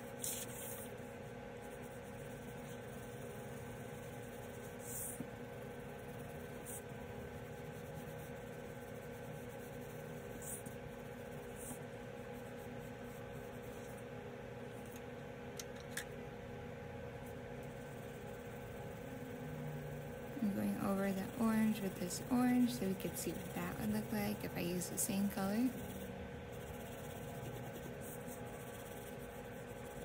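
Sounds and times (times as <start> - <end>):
pencil scratching on paper: 0.1 - 1.0, 1.6 - 14.0, 17.6 - 30.0.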